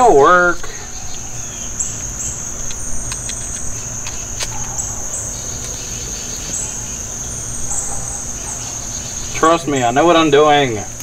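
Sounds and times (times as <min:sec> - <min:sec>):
insects singing: 0:00.0 - 0:11.0
faint clicks: 0:01.1 - 0:06.6.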